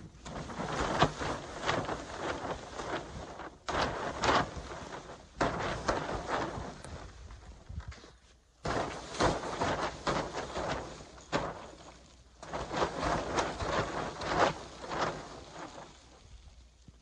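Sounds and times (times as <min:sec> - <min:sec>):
brush scraping snow off fabric: 0:08.7 - 0:16.2.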